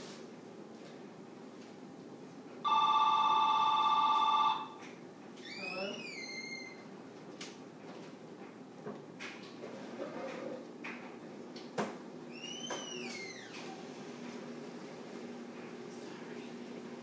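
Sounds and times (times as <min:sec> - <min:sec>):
telephone ringing electronic trill: 0:02.7 - 0:04.8.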